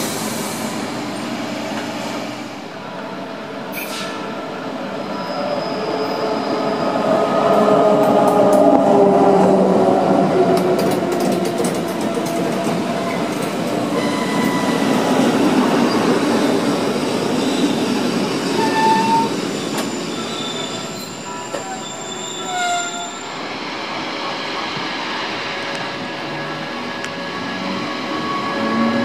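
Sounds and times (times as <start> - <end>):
train wheels squealing: 5.0 - 7.0, 13.0 - 16.2, 17.3 - 23.4, 27.2 - 29.0
wheels rumbling on rails: 7.1 - 21.8.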